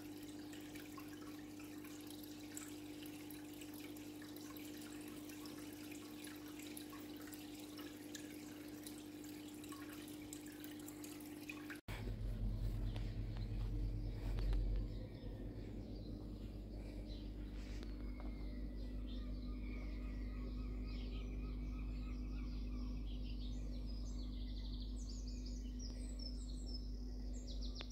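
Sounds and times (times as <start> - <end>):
water dripping and trickling: 0.0 - 18.0
steady low hum: 0.0 - 27.9
deep rumble: 11.9 - 21.1.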